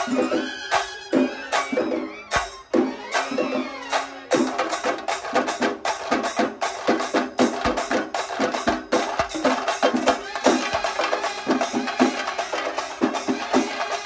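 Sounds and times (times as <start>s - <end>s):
fast dense drumming: 4.3s - 14.0s
band playing melody: 9.9s - 14.0s.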